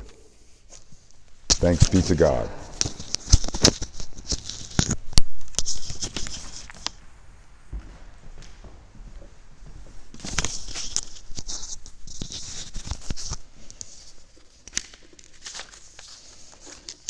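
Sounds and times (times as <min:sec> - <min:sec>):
clip-on microphone handling noise: 0:01.5 - 0:07.0.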